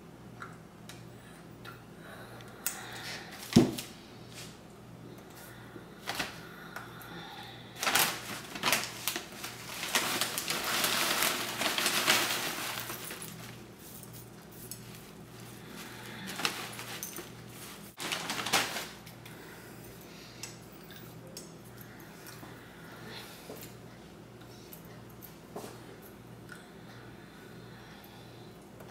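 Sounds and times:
hard pieces rattling in bag: 7.8s - 13.6s
plastic bag crinkling: 7.8s - 19.2s.

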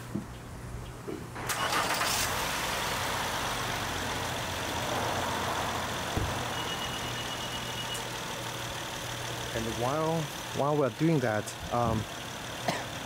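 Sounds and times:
car engine cranking: 1.4s - 3.3s
car engine idling: 1.4s - 13.0s.

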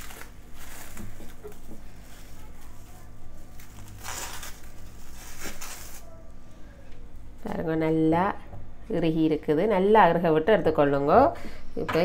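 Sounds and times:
cling film crinkling: 0.0s - 6.2s.

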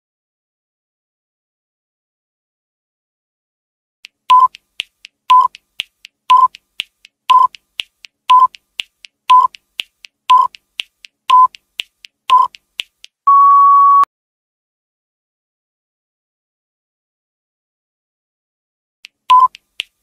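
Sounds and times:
faint ticks: 4.0s - 13.2s
countdown timer beeps: 4.3s - 4.6s, 5.3s - 5.6s, 6.3s - 6.6s, 7.3s - 7.6s, 8.3s - 8.6s, 9.3s - 9.6s, 10.3s - 10.6s, 11.3s - 11.6s, 12.3s - 12.6s, 19.3s - 19.6s
long steady beep: 13.3s - 14.1s, 19.3s - 19.5s.

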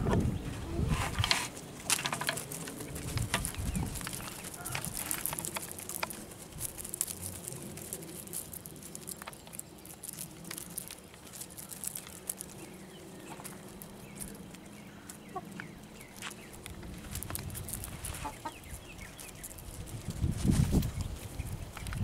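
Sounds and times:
hens clucking: 18.1s - 18.6s.

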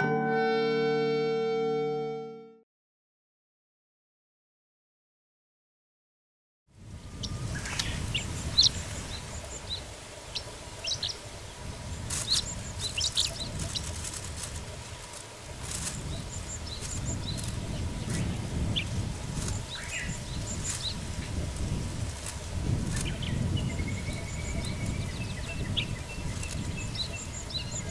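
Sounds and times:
bird chirping and singing: 7.1s - 14.7s, 15.6s - 27.9s.

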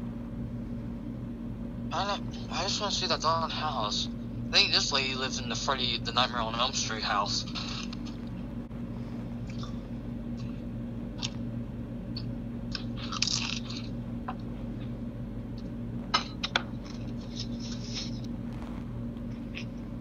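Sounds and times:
steady low hum: 0.0s - 20.0s
short rustling noises: 17.1s - 19.7s.

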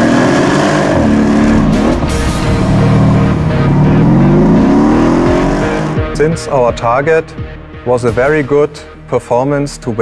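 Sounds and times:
car engine accelerating hard: 0.0s - 6.2s.

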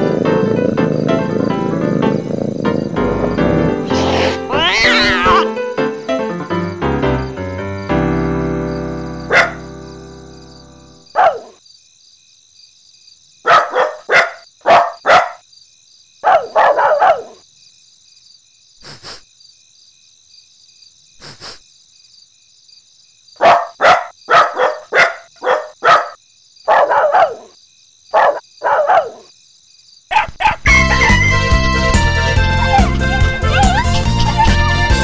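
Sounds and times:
cartoon dogs barking and yipping: 2.8s - 5.6s, 9.2s - 9.7s, 11.1s - 11.6s, 13.4s - 15.4s, 16.2s - 17.4s, 23.4s - 29.3s, 30.1s - 35.0s.

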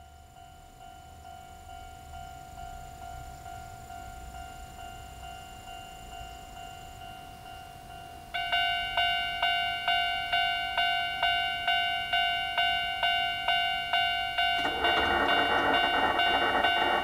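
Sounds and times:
level crossing alarm bell: 0.0s - 17.0s.

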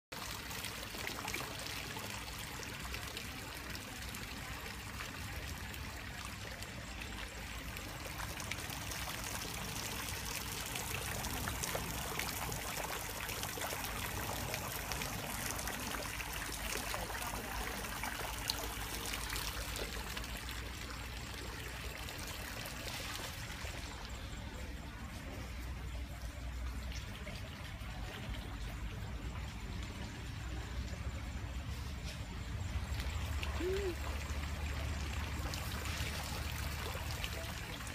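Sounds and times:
water trickling into pond: 0.1s - 37.9s.

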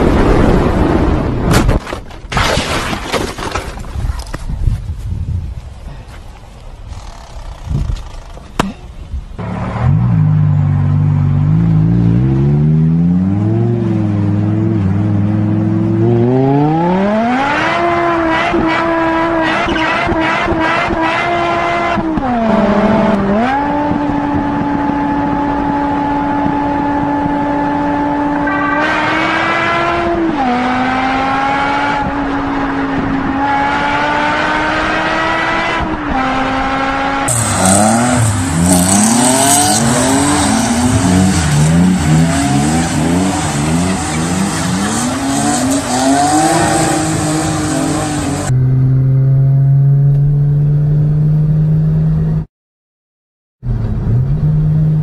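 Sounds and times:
car engine revving: 9.4s - 52.4s.

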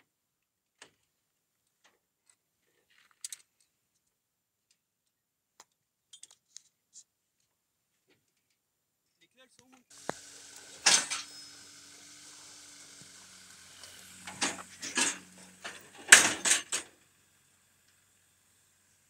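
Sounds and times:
car rolling onto gravel: 9.9s - 17.1s.

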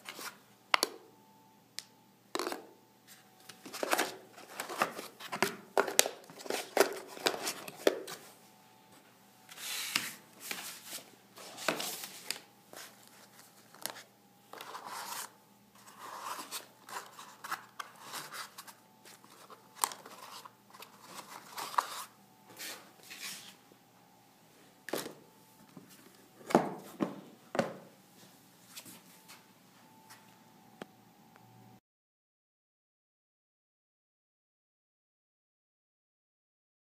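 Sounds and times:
plastic items rustling and clicking: 3.4s - 8.3s, 9.5s - 23.5s.

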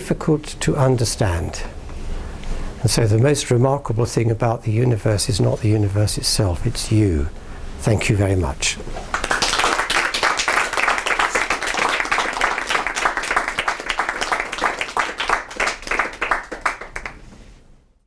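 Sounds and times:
small audience applauding: 9.1s - 17.3s.

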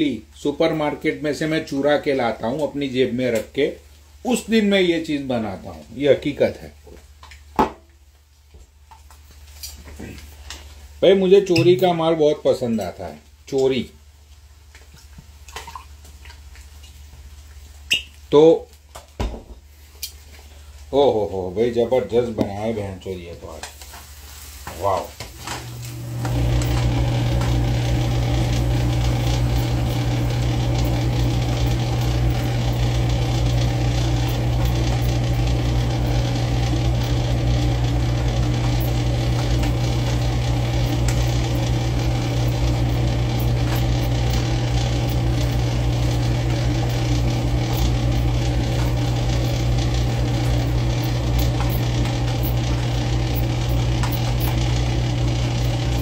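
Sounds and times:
electric motor hum: 25.4s - 56.0s.

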